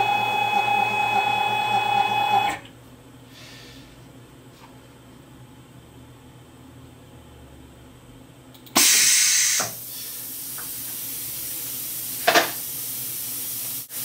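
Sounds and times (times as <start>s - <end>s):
hiss: 8.8s - 14.0s.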